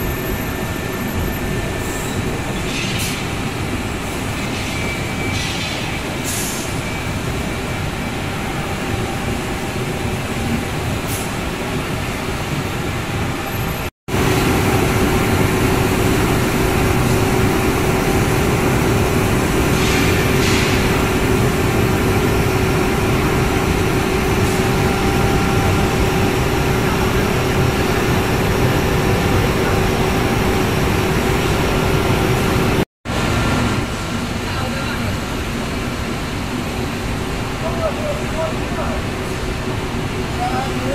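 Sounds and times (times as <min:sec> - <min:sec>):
motors and roller conveyors: 0:13.4 - 0:34.1
steady machine hum: 0:14.1 - 0:38.2.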